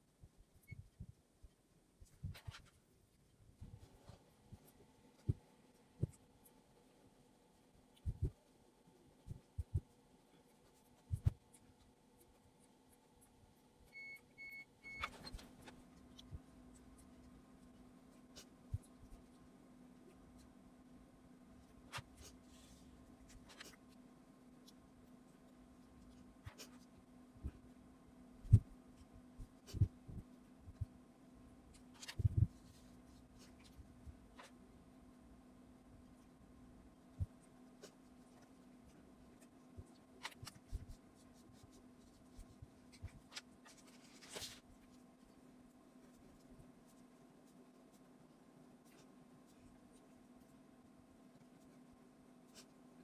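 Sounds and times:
faint steady low hum: 0:00.0 - 0:53.0
marker pen scratching on paper: 0:39.3 - 0:44.6.

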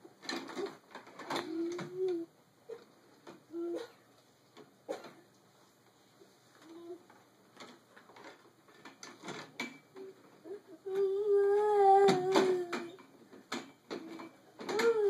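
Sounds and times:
toddler humming a vowel: 0:10.5 - 0:13.0, 0:14.7 - 0:15.0.

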